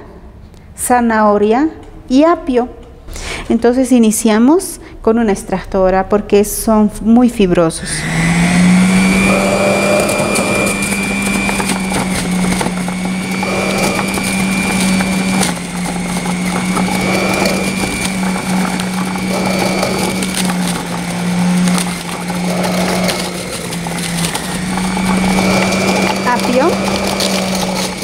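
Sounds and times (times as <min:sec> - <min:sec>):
juicer motor humming: 0:07.7 - 0:28.0
juicer blade crunching vegetables: 0:07.8 - 0:28.0.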